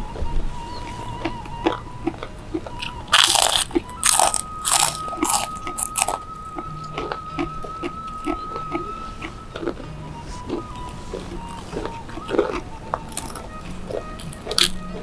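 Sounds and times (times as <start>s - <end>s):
soft chewing: 0.1s - 15.0s
crunching cracker bites: 1.2s - 8.8s, 11.4s - 15.0s.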